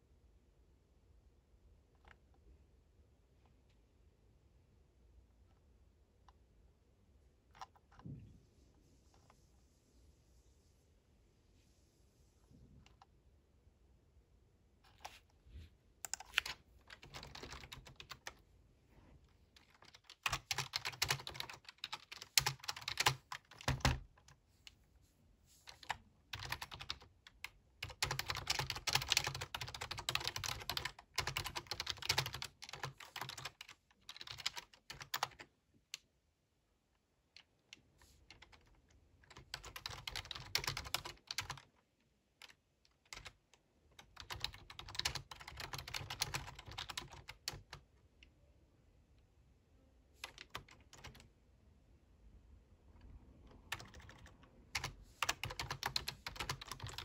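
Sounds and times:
typing on computer keyboard: 0:16.0 - 0:18.4, 0:19.6 - 0:24.4, 0:25.7 - 0:35.5, 0:38.3 - 0:41.7, 0:42.4 - 0:47.8, 0:50.2 - 0:51.3, 0:53.5 - 0:57.0.

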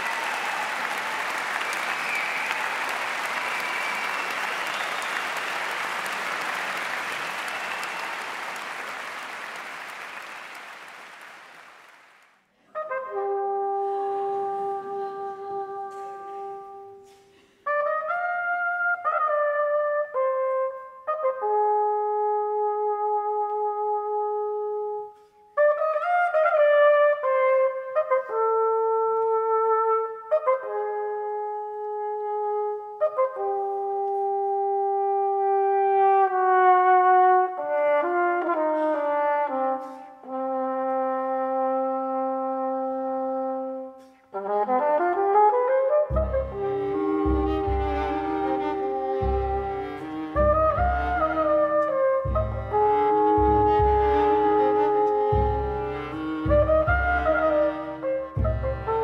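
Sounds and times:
audience applause: 0:00.0 - 0:12.4
strings and brass playing chords: 0:46.1 - 0:59.0.

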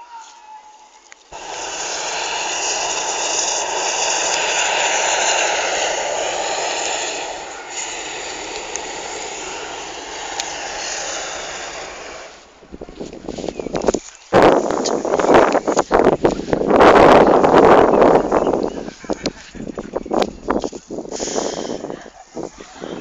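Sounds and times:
propane burner firing: 0:01.3 - 0:12.9, 0:21.1 - 0:21.9.

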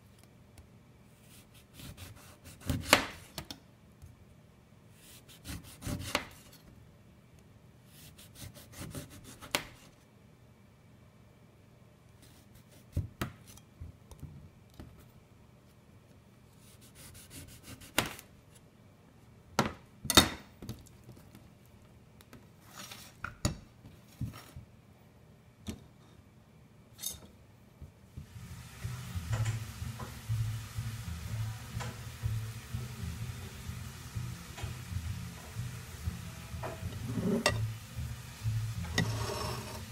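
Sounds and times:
steady low hum: 0:28.0 - 0:39.9.

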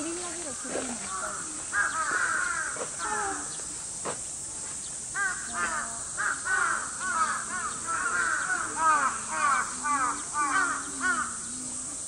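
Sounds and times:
crows cawing: 0:00.5 - 0:03.6, 0:05.2 - 0:11.6.

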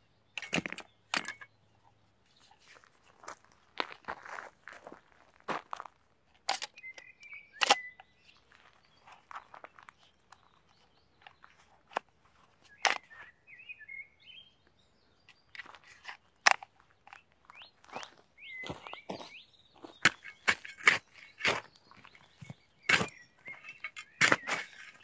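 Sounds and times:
birds chirping: 0:00.0 - 0:25.0
shovel and belt clicking: 0:07.6 - 0:07.9, 0:20.0 - 0:21.6, 0:22.9 - 0:25.0.

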